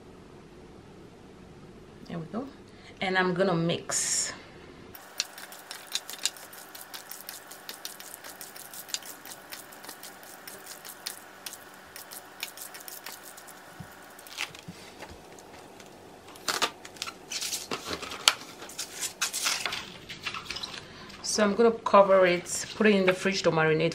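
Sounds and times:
hands mixing meat in marinade: 0:05.0 - 0:15.4
cling wrap crinkling: 0:05.0 - 0:20.5.

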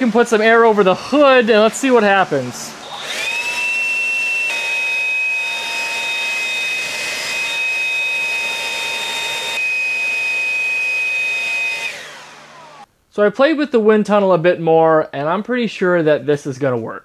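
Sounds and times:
handheld blower whining: 0:00.0 - 0:12.9.

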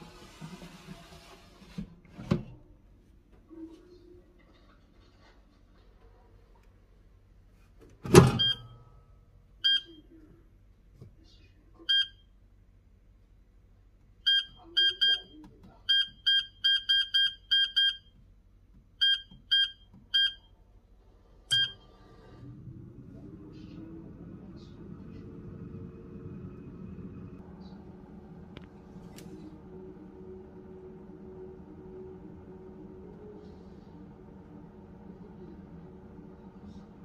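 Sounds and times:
short electronic beeps: 0:21.5 - 0:21.8.

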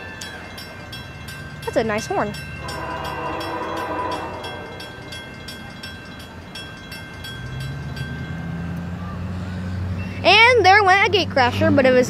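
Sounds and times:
railroad crossing bell ringing: 0:00.0 - 0:11.2
low rumble of locomotive: 0:00.0 - 0:12.0
locomotive horn: 0:02.6 - 0:05.2.

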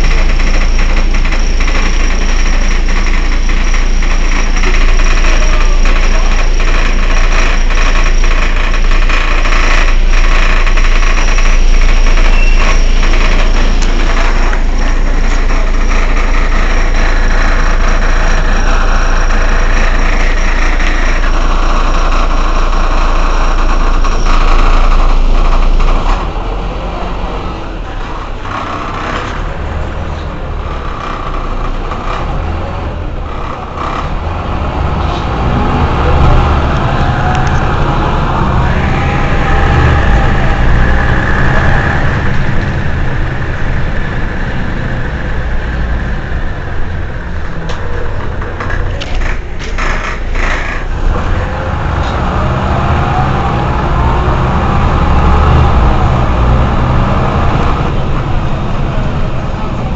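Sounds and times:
bus engine idling: 0:00.0 - 0:59.9.

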